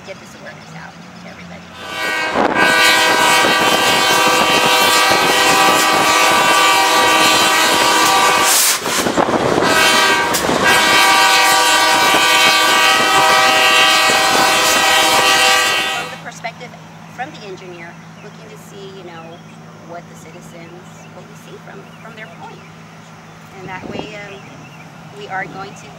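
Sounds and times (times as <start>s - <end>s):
train air horn blasts: 1.8s - 16.4s.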